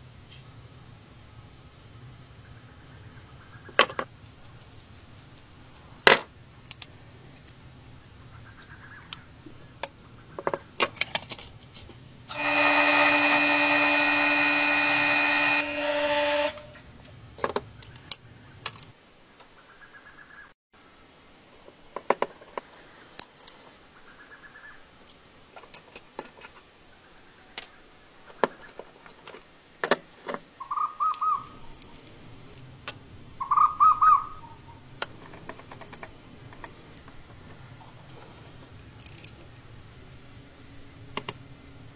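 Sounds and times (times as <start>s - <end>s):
power tool running: 12.3s - 16.8s.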